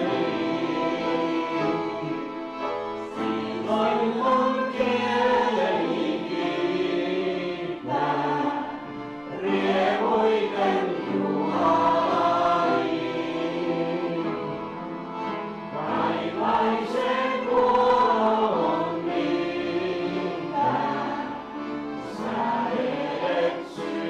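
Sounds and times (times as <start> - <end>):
accordion: 0.0 - 24.0
upright piano: 0.0 - 24.0.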